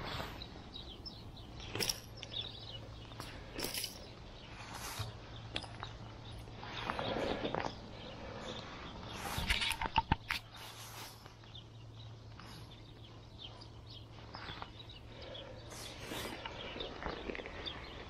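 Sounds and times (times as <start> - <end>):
low steady hum: 0.0 - 18.0
jacket and nylon mat rustling: 10.5 - 11.4.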